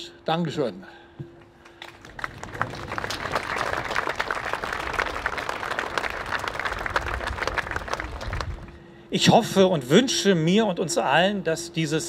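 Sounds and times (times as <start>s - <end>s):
crowd applauding: 1.6s - 8.7s.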